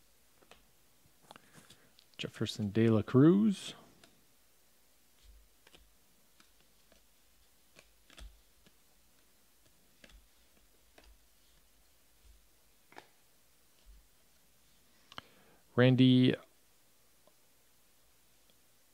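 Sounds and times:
trading cards flipping: 0.4 - 0.6, 5.1 - 14.0.

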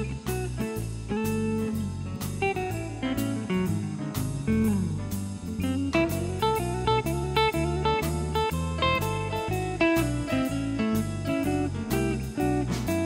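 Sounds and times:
bass line: 0.0 - 13.0
blues guitar: 0.0 - 13.0
drum hits: 0.0 - 13.0.

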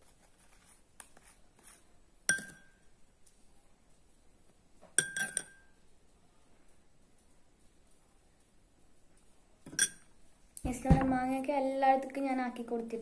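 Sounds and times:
metal spoon clinking against bowl: 2.3 - 2.8, 5.0 - 5.8, 9.7 - 10.1.

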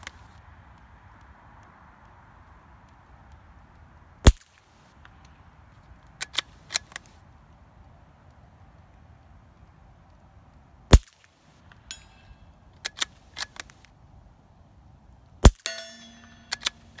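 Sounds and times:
suppressed rifle shots: 4.2 - 4.6, 10.9 - 11.2, 15.4 - 17.0
metallic ring: 11.8 - 12.6, 15.5 - 17.0.

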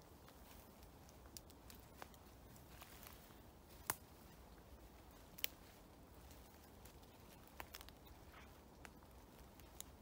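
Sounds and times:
raindrops ticking on leaves: 0.0 - 4.3, 4.9 - 10.0
faint steady rain hush: 0.0 - 10.0.

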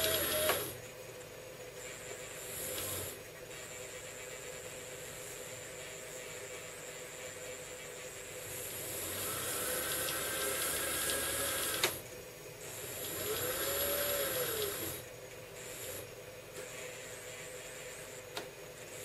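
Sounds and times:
small motor whirring: 0.0 - 0.8, 2.6 - 3.2, 8.6 - 12.0, 12.8 - 16.1.

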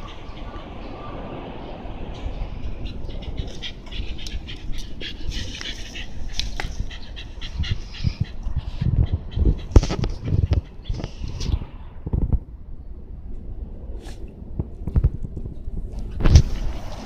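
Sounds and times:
low rumble of street noise: 0.0 - 17.0
dog panting: 2.8 - 11.1.

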